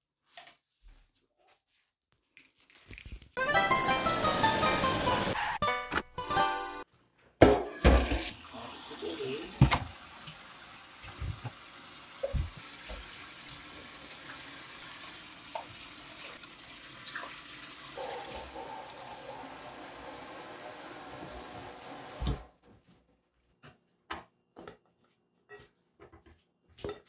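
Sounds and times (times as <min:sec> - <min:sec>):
running water rushing: 0:03.4 - 0:05.4, 0:08.2 - 0:22.5.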